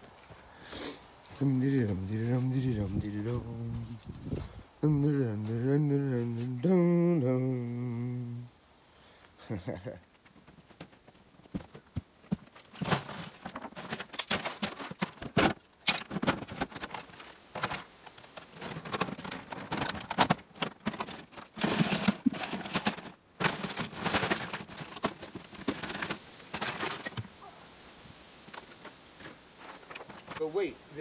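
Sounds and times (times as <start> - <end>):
plastic totes being handled: 10.1 - 31.0
scrap tossed into plastic totes: 12.3 - 27.4, 28.4 - 30.7.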